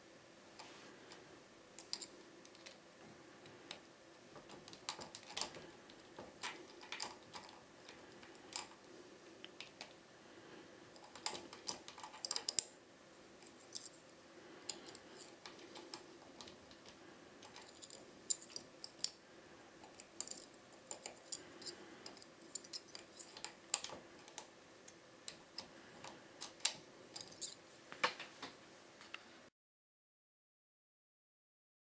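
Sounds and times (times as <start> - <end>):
lock pick clicking and scraping: 1.8 - 2.8, 4.4 - 8.9, 11.0 - 12.7, 13.4 - 14.0, 14.6 - 19.2, 19.8 - 27.6.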